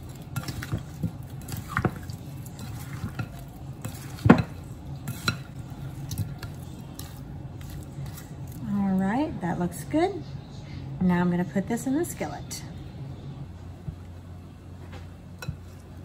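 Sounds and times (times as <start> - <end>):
soft stirring in a bowl: 0.0 - 9.1, 13.4 - 16.0.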